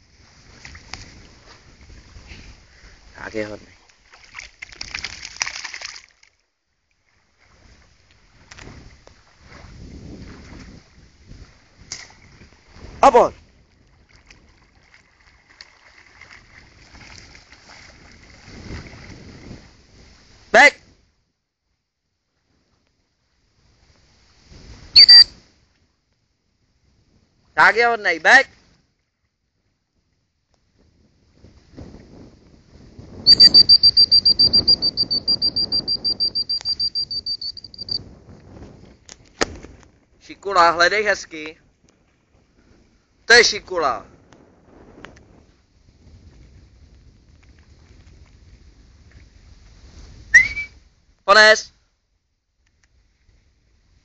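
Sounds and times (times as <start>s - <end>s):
wind buffeting microphone: 0.0s - 5.3s, 7.5s - 21.1s, 29.6s - 51.2s
faint water sounds: 0.0s - 24.6s
high trilled whistle: 24.9s - 25.4s, 33.2s - 38.0s, 50.3s - 50.8s.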